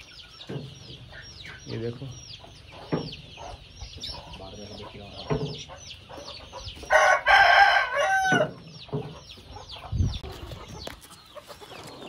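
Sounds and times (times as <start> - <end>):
chicks peeping: 0.0 - 12.0
rooster crowing: 6.9 - 8.6.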